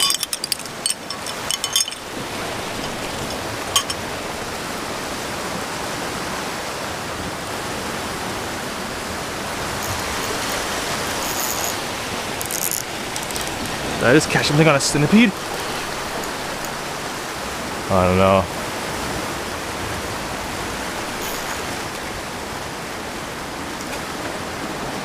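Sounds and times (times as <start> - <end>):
surf on rocky shoreline: 0.0 - 25.0
fishing reel clicks: 9.8 - 11.8, 12.4 - 13.7.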